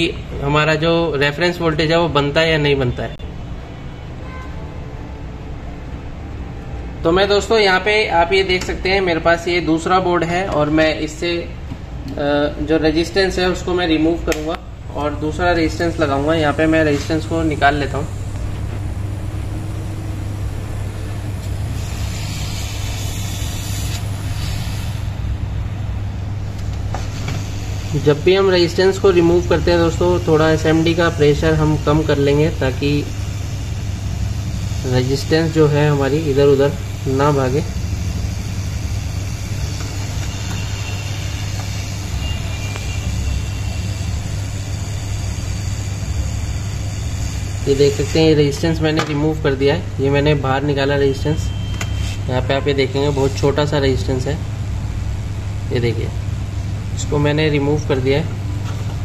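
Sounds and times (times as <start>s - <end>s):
fan hum: 0.0s - 59.0s
low hum: 15.7s - 23.1s
hiss of hot air: 16.6s - 25.3s, 26.9s - 29.2s, 30.2s - 48.5s.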